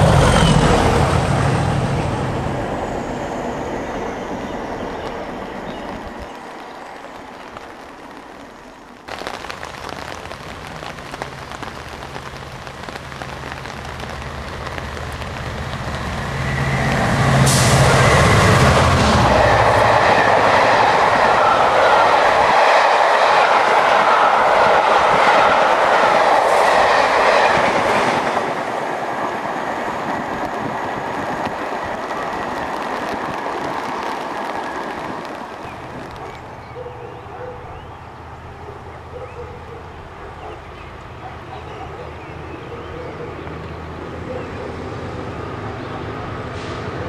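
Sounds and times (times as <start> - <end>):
train wheels rushing: 0.0 - 7.2, 14.6 - 36.5
diesel locomotive engine: 0.0 - 9.0, 12.4 - 47.0.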